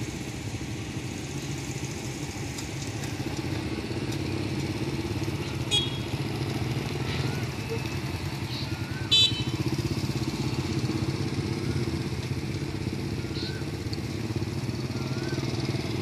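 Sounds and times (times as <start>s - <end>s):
small motorcycle engines running: 0.0s - 16.0s.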